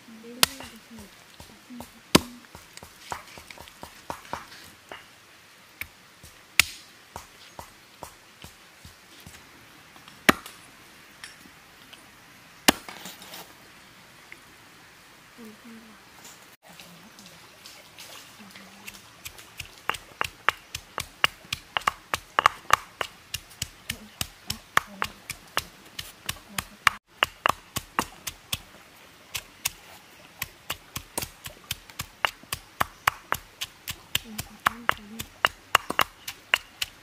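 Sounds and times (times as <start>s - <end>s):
pestle pounding in stone mortar: 1.4s - 4.6s, 18.9s - 28.7s, 30.4s - 37.0s.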